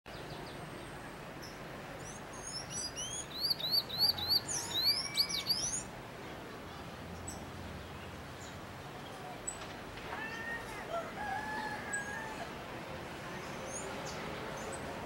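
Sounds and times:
bird singing squeaky notes: 2.4 - 5.9.

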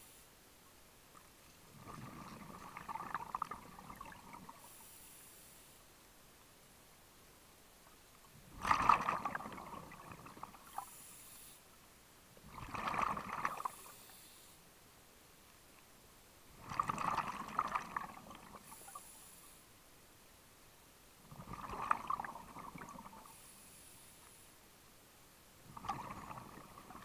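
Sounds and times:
exhaled bubbles underwater: 1.7 - 4.6, 8.5 - 10.8, 12.4 - 13.9, 16.5 - 18.9, 21.3 - 23.3, 25.7 - 27.0
faint hiss of inhalation: 4.5 - 5.9, 10.7 - 11.7, 13.7 - 14.7, 18.6 - 19.7, 23.2 - 24.6.

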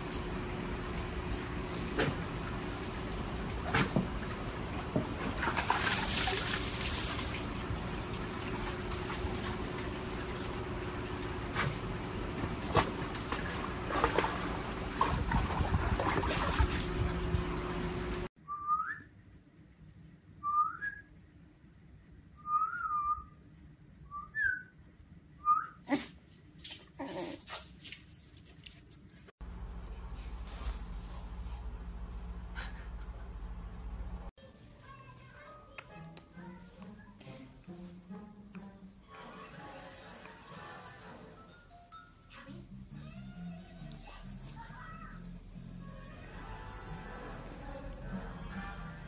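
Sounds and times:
water splashing in a plastic tub: 3.4 - 17.6.

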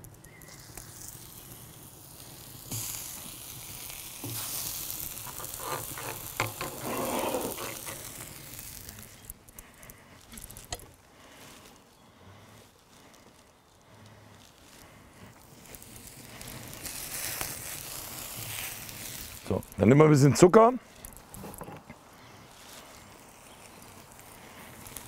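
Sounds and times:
cabbage sizzling in oil: 0.0 - 9.4, 15.4 - 19.9.

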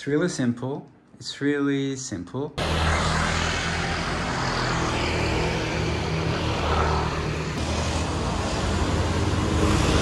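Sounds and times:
motor scooter engines humming: 2.6 - 10.0.

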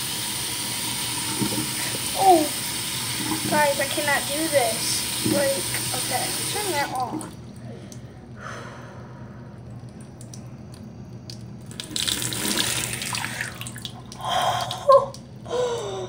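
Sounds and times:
tap water splashing in a sink: 1.2 - 2.3, 3.1 - 7.4, 11.2 - 15.3.

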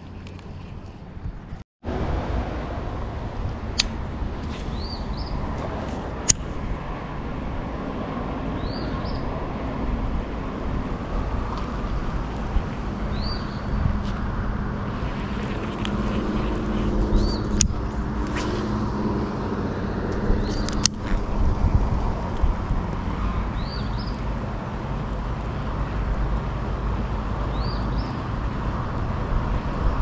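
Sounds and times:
car passing on road: 1.9 - 30.0
sharp click: 3.7 - 5.0.

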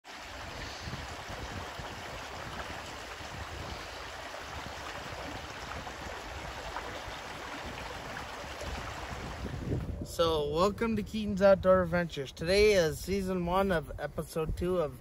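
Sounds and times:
creek running over rocks: 0.0 - 10.0.

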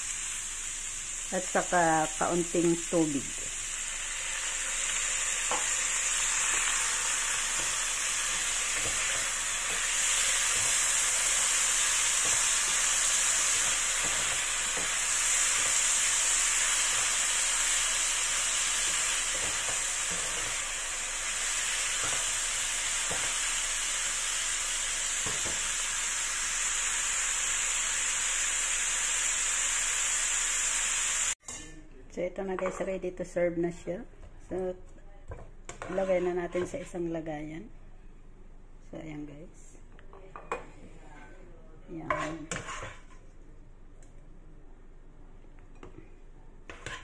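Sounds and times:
vegetables sizzling in a frying pan: 0.0 - 31.4, 46.7 - 47.0
spatula scraping and tapping: 35.3 - 37.0, 42.0 - 43.3, 46.7 - 47.0.

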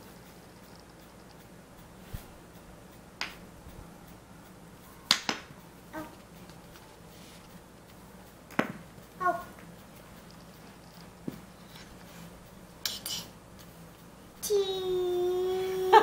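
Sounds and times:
wooden blocks clacking: 5.1 - 5.6.

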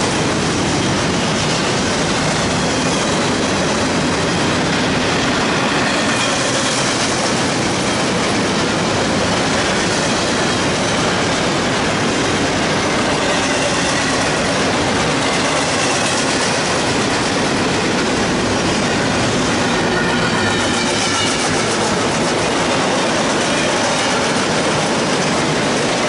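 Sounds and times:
train wheels rushing on rail: 0.0 - 26.0.

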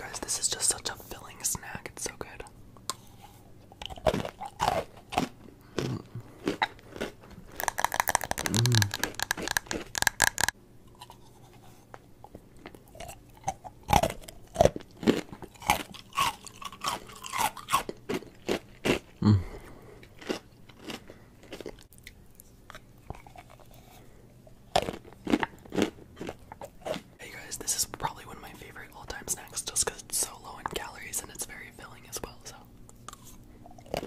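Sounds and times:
crunchy chewing of ice: 2.9 - 27.2, 32.9 - 34.0.

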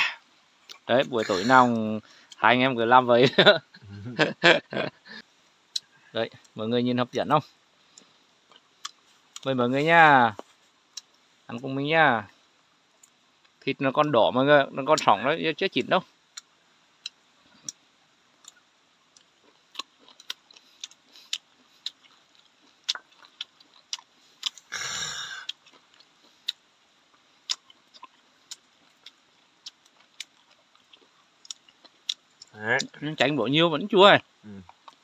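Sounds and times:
mouth clicks and smacks chewing: 18.4 - 24.7, 25.4 - 33.0, 34.6 - 35.0.

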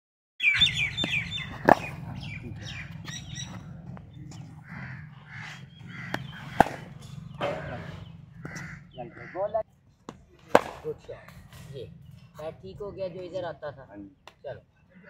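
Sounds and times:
small birds chirping: 0.4 - 15.0
crows cawing: 0.5 - 9.6
cricket ball knocks: 1.0 - 2.0, 6.1 - 7.7.

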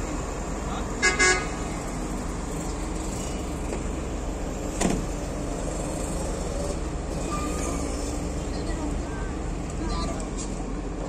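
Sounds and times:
engines idling: 0.0 - 11.0.

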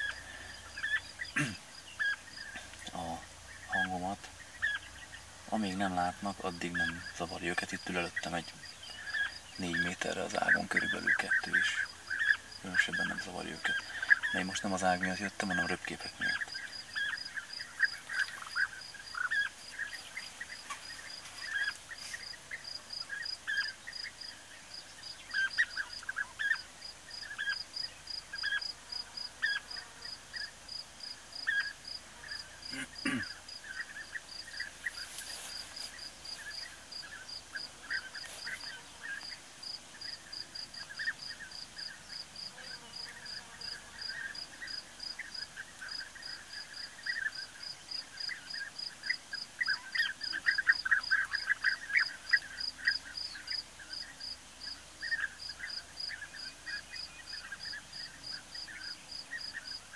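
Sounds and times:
bee-eaters calling: 0.0 - 28.7, 31.4 - 39.4, 43.1 - 54.2
insect chirping in a fast pulse: 0.0 - 59.9.

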